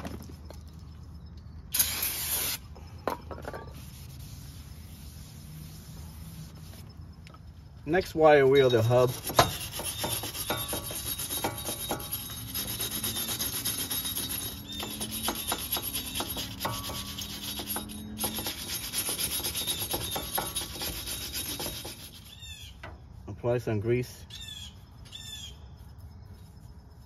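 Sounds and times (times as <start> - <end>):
wire brush scrubbing metal: 7.9 - 22.9.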